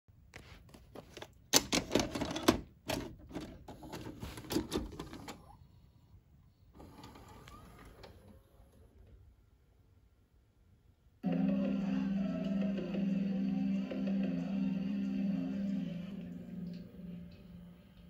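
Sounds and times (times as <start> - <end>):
vcr loading mechanism clattering: 1.5 - 5.5, 6.8 - 9.2
vcr steady whir: 6.6 - 10.0.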